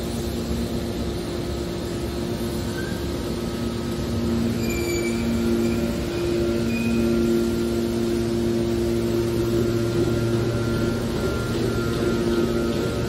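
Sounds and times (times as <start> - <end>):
hydraulic press motor hum: 0.8 - 13.0
high squeals of press rams: 4.6 - 5.8.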